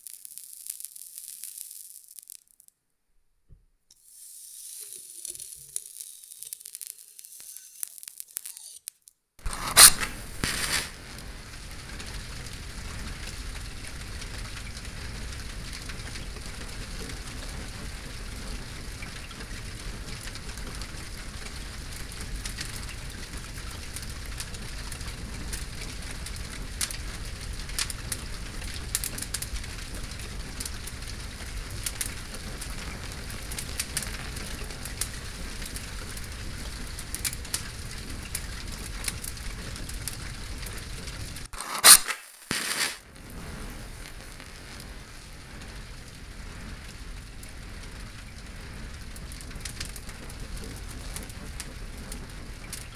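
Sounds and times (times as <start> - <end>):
match burning with hiss: 0.0 - 2.7, 3.9 - 13.2, 37.1 - 46.1
match flaring: 0.0 - 2.7, 3.9 - 12.1, 41.3 - 45.0
small crackles: 0.0 - 2.8, 3.9 - 52.9.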